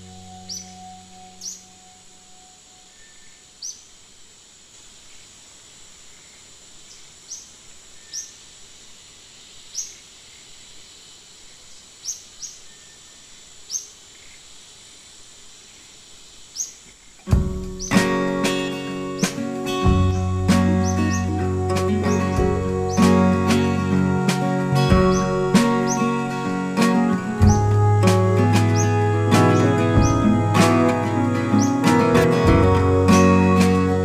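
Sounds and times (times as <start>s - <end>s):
plucked-string background music: 0.0s - 2.2s, 17.3s - 34.0s
faint steady high tone: 0.0s - 3.5s
rising bird chirps: 0.0s - 3.8s, 17.8s - 34.0s.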